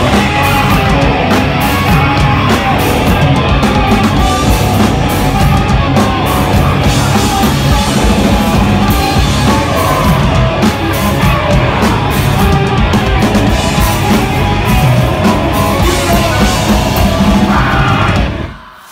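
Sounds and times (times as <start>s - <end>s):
distorted electric guitars: 0.0s - 18.9s
drum kit: 0.0s - 18.9s.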